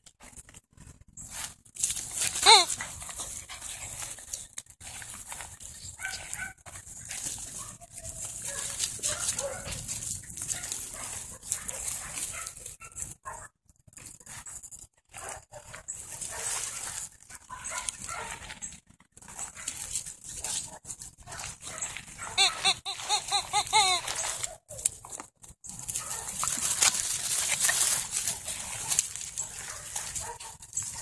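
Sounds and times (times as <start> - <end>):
leaves rustling: 0.2 - 13.1, 15.1 - 18.6, 19.3 - 31.0
puppies scuffling: 0.3 - 13.2, 14.0 - 31.0
high-pitched puppy yips: 2.4 - 2.8, 22.2 - 24.9.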